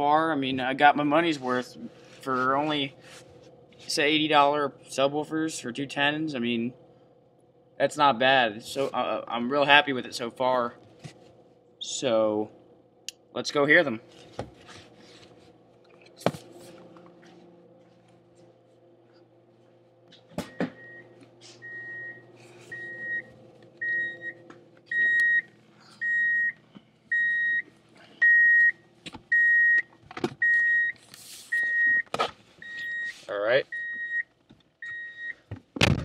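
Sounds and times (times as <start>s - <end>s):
car warning chime beeping: 20.5s - 31.0s.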